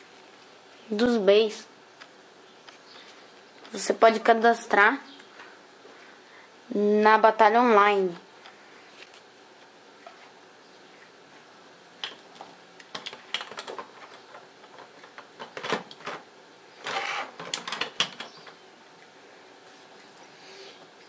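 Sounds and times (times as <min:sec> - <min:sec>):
plastic parts clicking and rattling: 0:12.0 - 0:16.2, 0:16.8 - 0:18.6.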